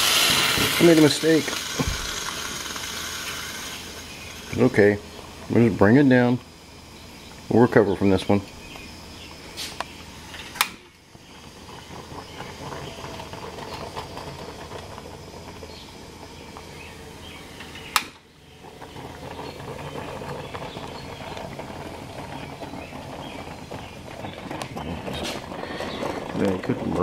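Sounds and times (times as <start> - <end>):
coffee percolator bubbling: 0.0 - 27.0
gas burner hiss: 0.0 - 27.0.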